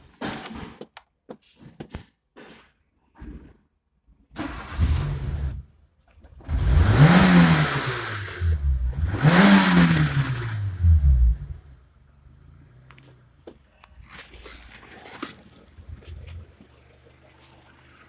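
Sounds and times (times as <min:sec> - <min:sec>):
car engine revving: 0:06.4 - 0:12.9.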